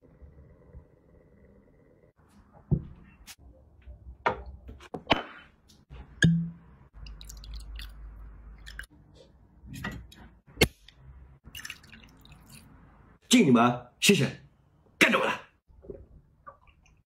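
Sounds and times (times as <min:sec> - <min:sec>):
liquid pouring into a glass: 0:07.0 - 0:08.0, 0:11.5 - 0:12.6.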